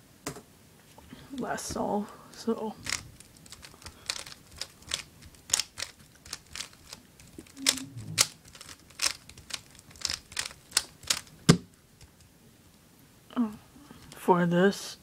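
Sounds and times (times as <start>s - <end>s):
puzzle cube layers clicking: 2.8s - 12.2s.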